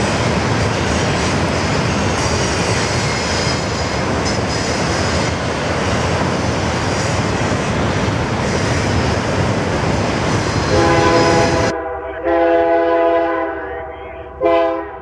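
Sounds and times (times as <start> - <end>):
freight train rumbling by: 0.0 - 15.0.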